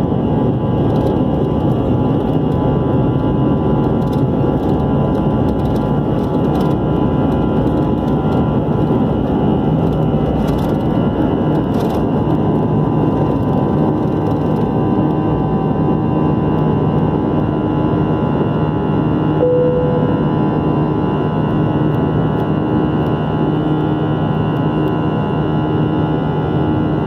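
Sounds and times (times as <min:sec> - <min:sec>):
jet engines roaring in cabin: 0:00.0 - 0:27.0.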